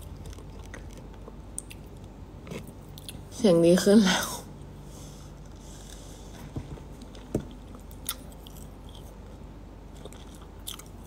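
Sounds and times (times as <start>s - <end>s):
person chewing food: 0.0s - 3.3s, 7.0s - 11.0s
low steady hum: 0.0s - 11.0s.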